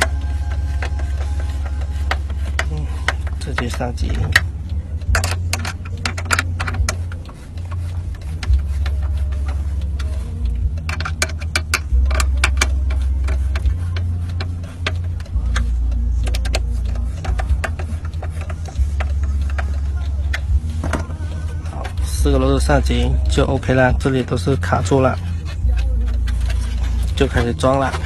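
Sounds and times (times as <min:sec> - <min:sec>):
steady low rumble: 0:00.0 - 0:28.0
screwdriver clicks and taps: 0:10.7 - 0:15.6.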